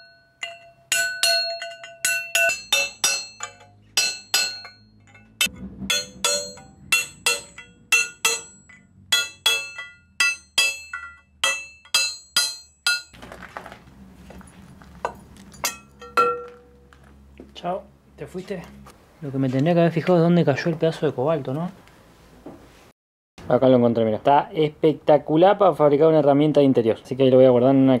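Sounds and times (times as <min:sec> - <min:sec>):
hammer striking metal chisel: 0:00.0 - 0:13.2, 0:15.1 - 0:16.9.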